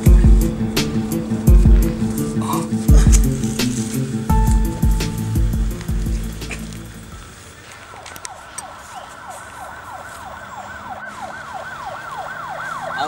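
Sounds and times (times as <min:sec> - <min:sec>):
background music: 0:00.0 - 0:07.1
police siren yelping: 0:08.2 - 0:13.0.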